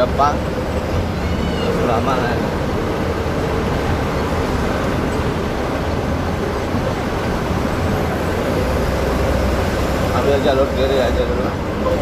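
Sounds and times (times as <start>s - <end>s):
road and tyre noise: 0.0s - 12.0s
truck diesel engine running: 0.0s - 12.0s.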